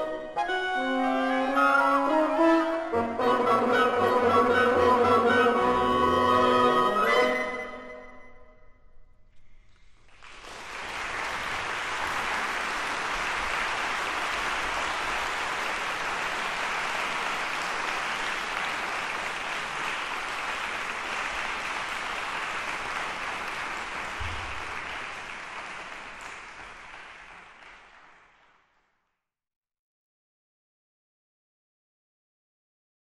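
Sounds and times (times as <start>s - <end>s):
audience applauding: 9.7s - 28.8s.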